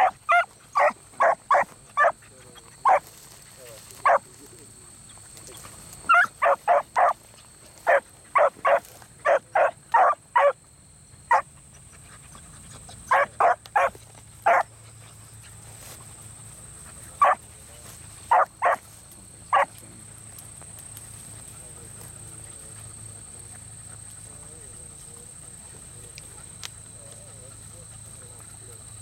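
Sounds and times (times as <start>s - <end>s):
dogs barking sharply: 0.0s - 2.2s, 2.8s - 3.0s, 4.0s - 4.3s, 6.1s - 7.2s, 7.8s - 10.6s, 11.3s - 11.5s, 13.0s - 14.7s, 17.2s - 17.4s, 18.3s - 18.8s, 19.5s - 19.7s.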